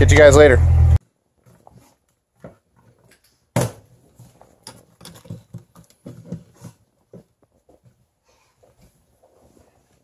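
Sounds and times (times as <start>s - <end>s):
plastic parts clicking and knocking: 4.6s - 7.3s.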